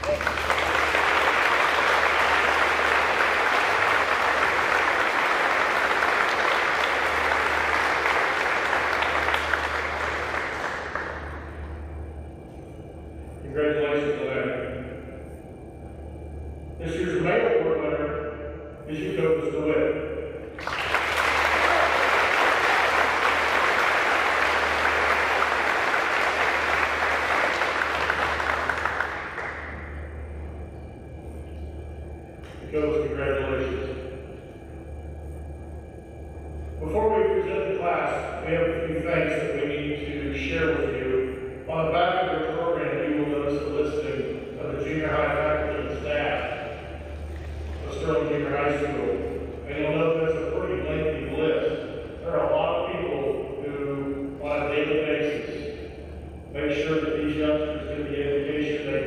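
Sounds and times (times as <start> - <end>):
audience applauding: 0.0 - 11.6, 20.6 - 30.0.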